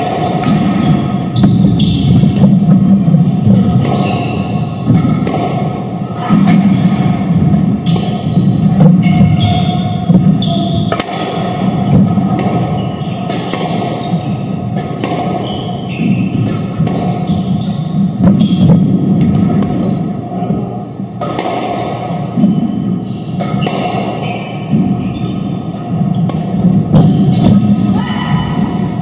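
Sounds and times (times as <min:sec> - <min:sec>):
squash ball hitting racquets and walls: 0:00.0 - 0:29.0
shoes squeaking on wooden floor: 0:00.2 - 0:04.5, 0:06.6 - 0:11.0, 0:15.4 - 0:20.0, 0:24.2 - 0:27.6.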